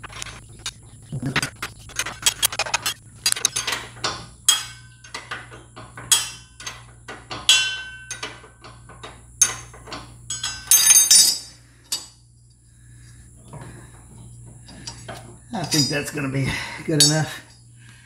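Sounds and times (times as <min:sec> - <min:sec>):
metal clinks and knocks: 0:01.8 - 0:12.2, 0:13.4 - 0:17.7
ringing metal clatter: 0:02.8 - 0:12.2, 0:14.5 - 0:17.6.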